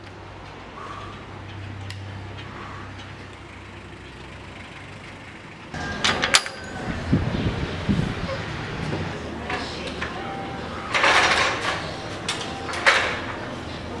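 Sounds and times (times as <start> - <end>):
metal gate clanking: 5.8 - 7.2, 9.3 - 14.0.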